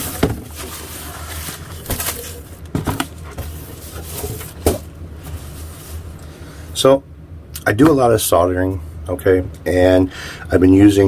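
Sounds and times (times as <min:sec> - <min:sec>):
cardboard rustling and scraping: 0:00.0 - 0:06.2.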